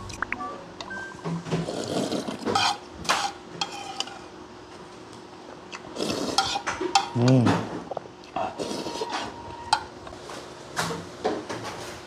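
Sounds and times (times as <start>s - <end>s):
person slurping broth: 1.6s - 2.8s, 5.9s - 6.6s, 8.4s - 9.1s.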